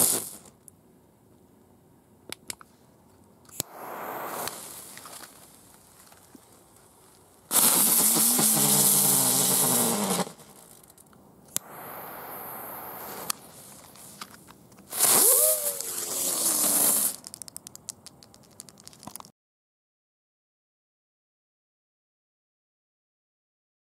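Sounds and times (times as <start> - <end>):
firework spinner hissing and whistling: 0.0 - 0.5, 3.6 - 6.6, 7.4 - 17.5
click: 2.3 - 2.7
scattered ticks: 17.2 - 19.3.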